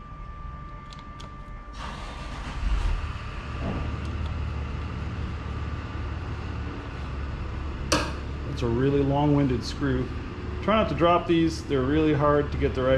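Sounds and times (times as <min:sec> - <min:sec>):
screwdriver clicks: 0:00.9 - 0:01.3
engine rumble with hiss: 0:01.7 - 0:12.9.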